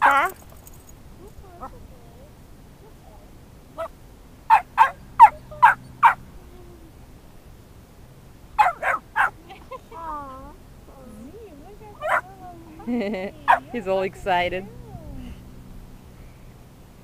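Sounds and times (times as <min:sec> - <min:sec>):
puppy yapping: 0:04.5 - 0:06.2, 0:08.6 - 0:09.4, 0:12.0 - 0:12.4, 0:13.4 - 0:13.8.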